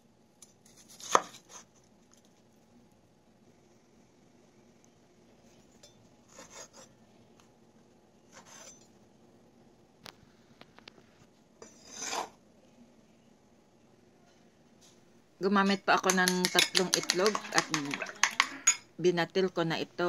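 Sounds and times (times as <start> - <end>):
knife cutting on wooden board: 0.7 - 1.7.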